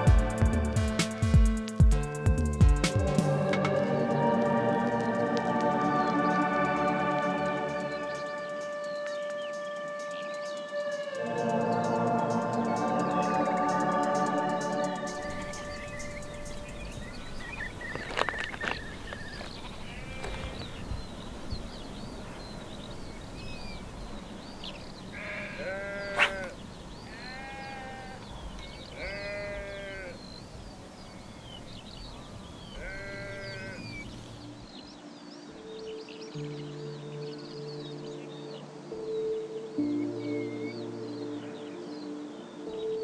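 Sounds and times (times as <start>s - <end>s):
sheep bleating: 19.8s - 20.7s, 25.1s - 28.3s, 28.9s - 30.2s, 32.7s - 34.0s
high short chirps: 26.1s - 26.4s.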